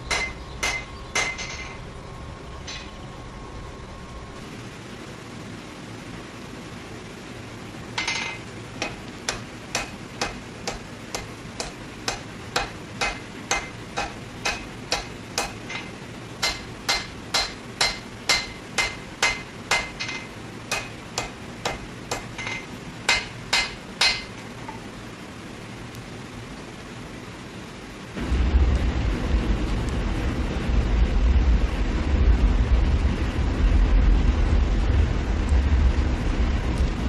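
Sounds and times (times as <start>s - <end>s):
hammer blows on metal: 0.0s - 1.8s, 8.8s - 24.4s.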